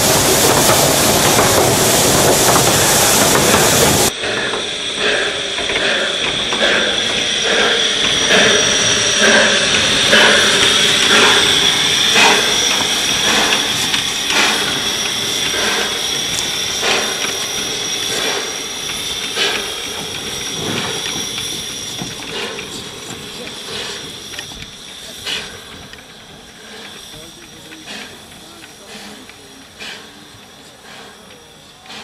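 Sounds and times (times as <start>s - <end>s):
steady steam hiss: 0.0s - 32.0s
steam locomotive exhaust chuffs: 0.0s - 32.0s.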